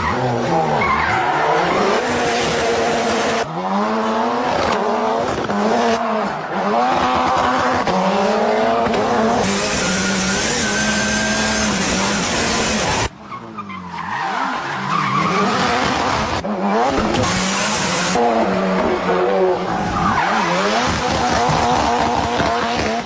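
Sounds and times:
rally car engine revving: 0:00.0 - 0:23.0
tyre squeal: 0:09.5 - 0:15.7.

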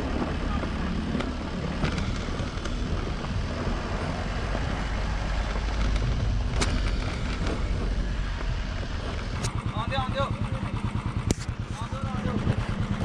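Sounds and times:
wind on microphone: 0:00.0 - 0:09.7
vehicle engine rumble: 0:00.0 - 0:13.0.

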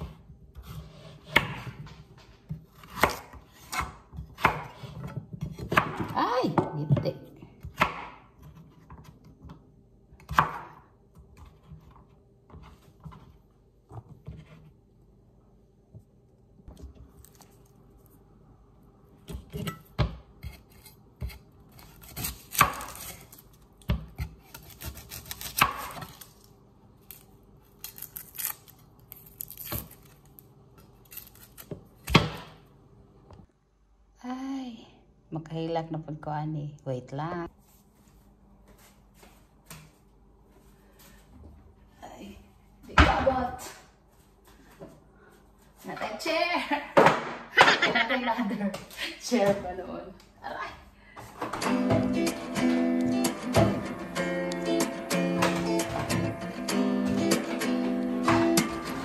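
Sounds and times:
knife chopping on plastic board: 0:07.6 - 0:09.2
onion skin rustling and tearing: 0:17.0 - 0:18.2, 0:21.6 - 0:32.2.

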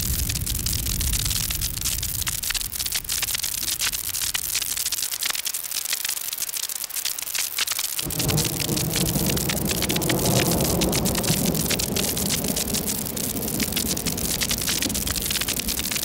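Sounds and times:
synthesized campfire crackle: 0:00.0 - 0:16.0
low rumbling layer: 0:08.1 - 0:16.0.

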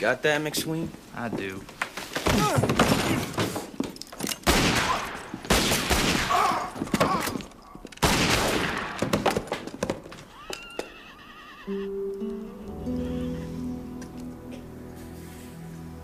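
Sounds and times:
revolver gunshots: 0:04.4 - 0:06.6, 0:08.0 - 0:09.4
horse whinnying: 0:10.2 - 0:13.6.

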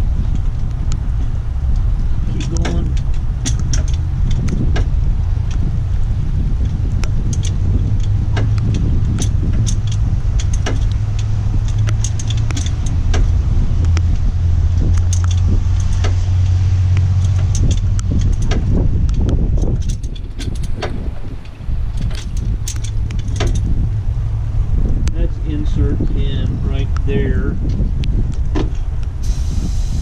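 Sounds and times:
steady low hum: 0:00.0 - 0:30.0
ratchet bar clicking and clanking: 0:01.7 - 0:05.8, 0:06.6 - 0:23.7.

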